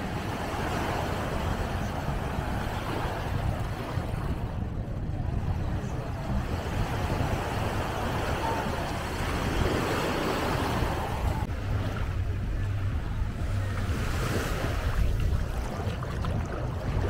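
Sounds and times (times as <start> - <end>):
wind rumbling on microphone: 0.0 - 17.0
small waves washing onto sand: 13.6 - 17.0.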